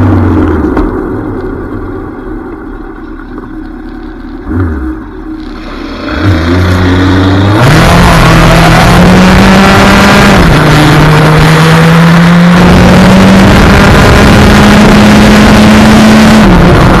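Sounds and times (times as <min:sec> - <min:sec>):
motorcycle engine at high revs: 0:04.5 - 0:17.0.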